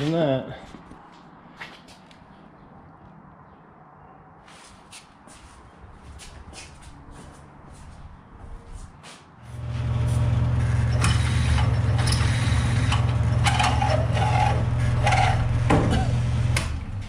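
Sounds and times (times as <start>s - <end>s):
drill motor humming: 9.6s - 16.9s.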